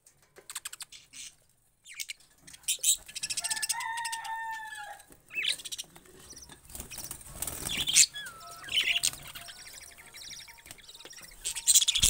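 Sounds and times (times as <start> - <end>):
budgerigars chattering: 0.5 - 4.4, 5.3 - 12.0
wings fluttering: 5.1 - 12.0
whistled bird calls: 7.7 - 12.0.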